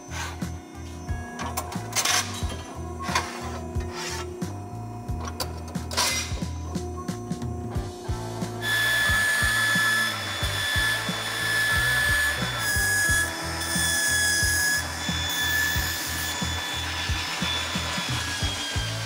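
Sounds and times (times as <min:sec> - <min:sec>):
belt grinder grinding steel: 0:08.6 - 0:19.0.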